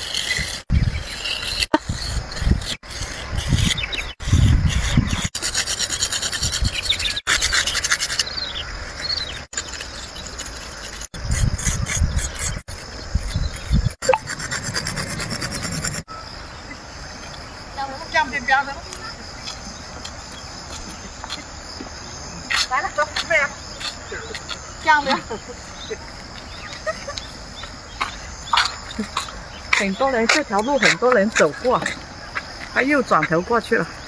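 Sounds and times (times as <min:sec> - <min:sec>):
drawing tool scraping concrete: 0:00.0 - 0:16.1.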